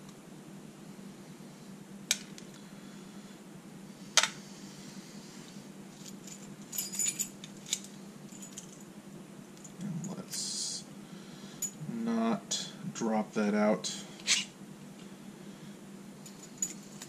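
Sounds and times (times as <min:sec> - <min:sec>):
light metallic clinks: 0:06.0 - 0:08.9, 0:11.6 - 0:11.8, 0:16.2 - 0:17.0.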